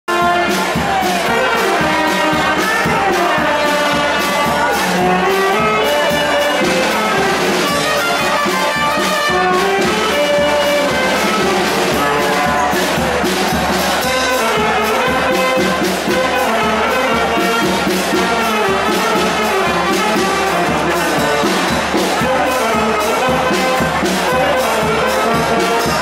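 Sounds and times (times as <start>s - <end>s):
brass band music: 0.0s - 26.0s.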